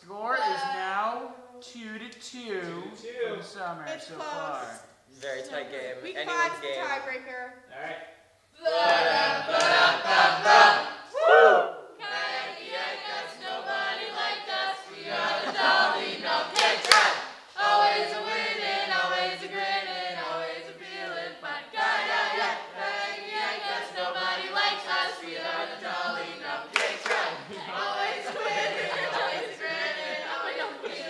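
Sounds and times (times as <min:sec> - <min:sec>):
group singing without instruments: 0:08.6 - 0:31.0
loud outburst of voices: 0:10.4 - 0:12.0.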